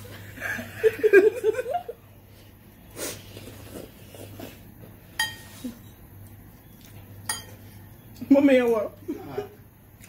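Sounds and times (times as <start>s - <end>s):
fork clinking against ceramic bowl: 5.2s - 5.6s, 7.2s - 7.7s.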